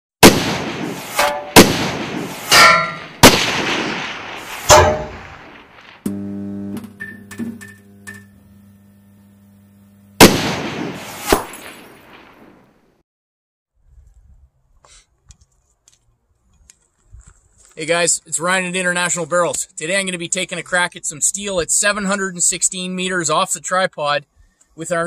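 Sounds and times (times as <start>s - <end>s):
heavy gunshot-like impacts: 0.2s - 6.0s, 10.2s - 12.6s
low steady hum: 6.1s - 10.6s.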